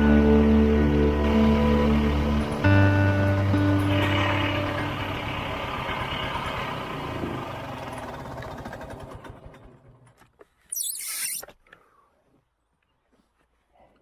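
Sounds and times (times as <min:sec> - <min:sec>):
snowmobile two-stroke engine running: 0:00.0 - 0:10.2.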